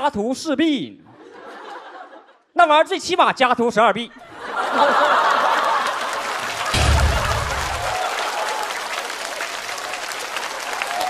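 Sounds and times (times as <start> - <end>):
audience applauding: 5.0 - 11.0.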